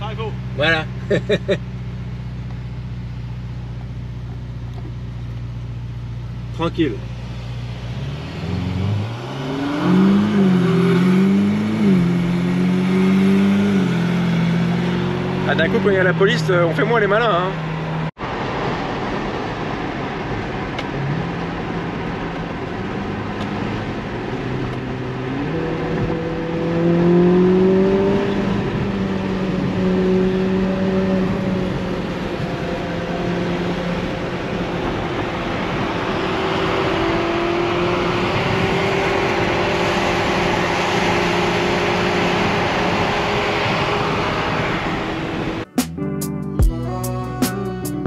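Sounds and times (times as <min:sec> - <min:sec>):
car engine from inside cabin: 0:00.0 - 0:45.8
road and wind noise: 0:00.0 - 0:46.8.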